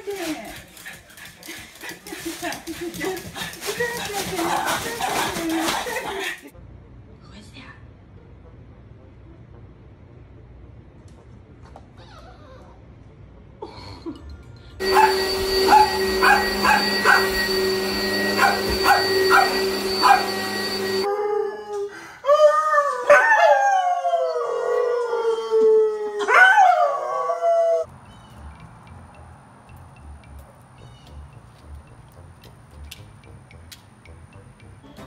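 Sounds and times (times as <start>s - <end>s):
dog barking: 14.8s - 17.5s, 18.2s - 20.6s
vacuum cleaner humming: 14.8s - 21.1s
dog howling: 14.8s - 27.9s.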